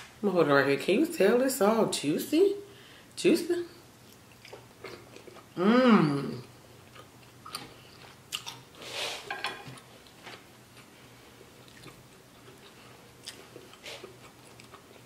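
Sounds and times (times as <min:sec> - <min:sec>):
wet chewing clicks and smacks: 0:08.3 - 0:08.7, 0:11.6 - 0:15.0.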